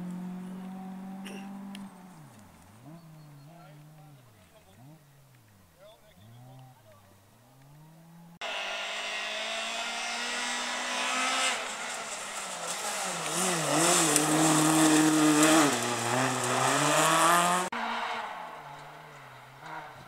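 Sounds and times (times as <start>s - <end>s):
rally car engine at high revs: 0.0s - 5.5s, 7.3s - 20.0s.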